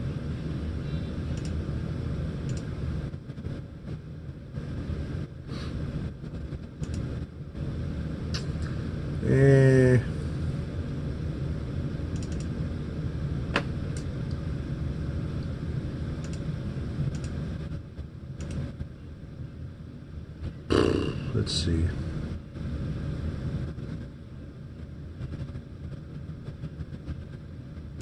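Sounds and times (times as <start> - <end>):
low rumble of room noise: 0.0 - 28.0
light clicks: 1.3 - 1.6, 2.5 - 2.7, 12.1 - 12.5, 17.1 - 17.4, 18.4 - 18.6
person humming: 20.7 - 21.3.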